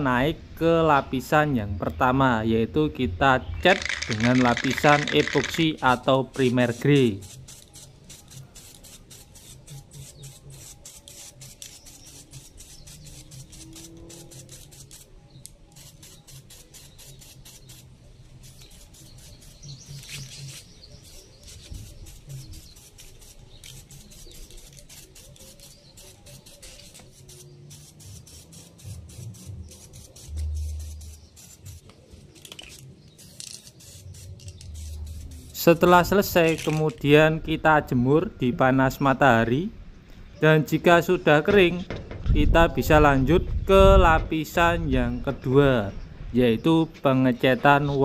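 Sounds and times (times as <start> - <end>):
quiet background music: 0.0 - 39.6
aerosol spray can hissing: 3.7 - 36.9.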